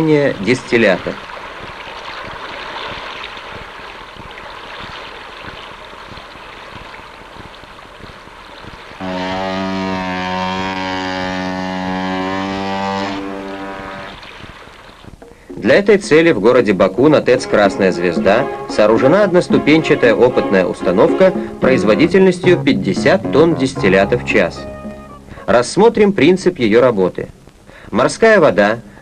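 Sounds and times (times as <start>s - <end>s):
rushing churning water: 0.0s - 22.5s
ship's horn blast: 9.0s - 14.2s, 17.3s - 25.6s.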